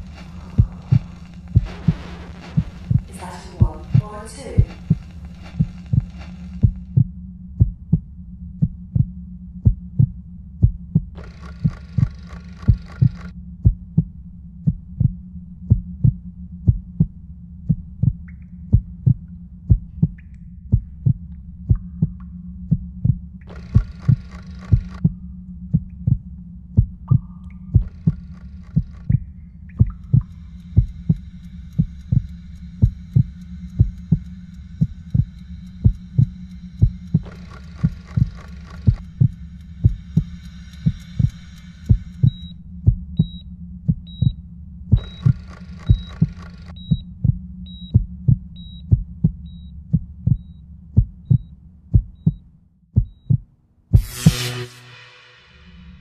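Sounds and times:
heartbeat thumps: 0:00.0 - 0:54.7
steady low hum: 0:00.0 - 0:56.0.

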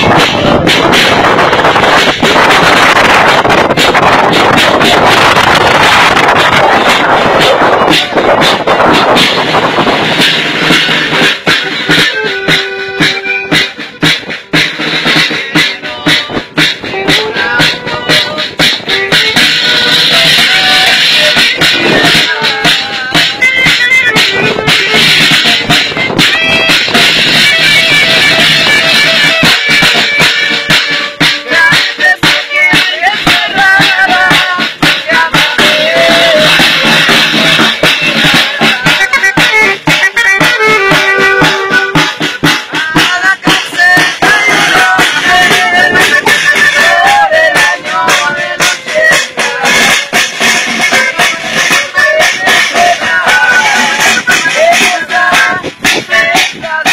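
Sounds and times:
music with steady beat: 0:00.0 - 0:56.9
button accordion melody: 0:10.2 - 0:56.9.

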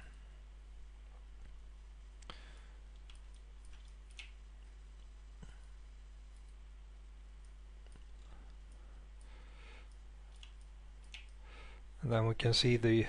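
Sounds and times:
low steady hum: 0:00.0 - 0:13.0
computer mouse clicks: 0:02.9 - 0:04.4, 0:07.4 - 0:11.4.

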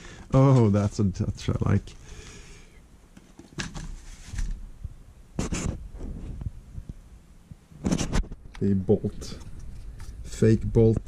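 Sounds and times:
rifle rubbing on foam: 0:05.4 - 0:05.8.

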